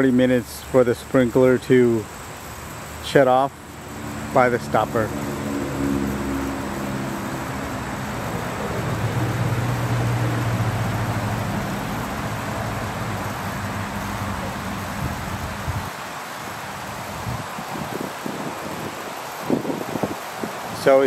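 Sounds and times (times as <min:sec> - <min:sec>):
water spraying from sprinkler: 0:00.0 - 0:21.0
low motor hum: 0:03.7 - 0:15.9.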